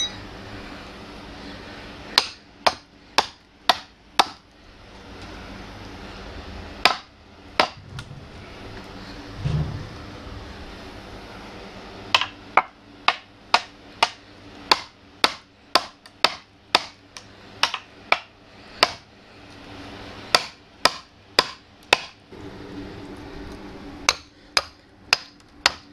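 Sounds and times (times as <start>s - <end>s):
hammer striking metal wedges: 2.2s - 4.4s, 17.6s - 19.0s, 20.3s - 22.2s.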